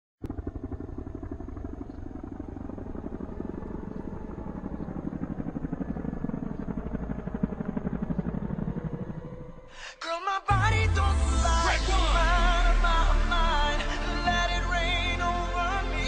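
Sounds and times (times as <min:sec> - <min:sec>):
helicopter rotor chopping: 0:00.2 - 0:09.7.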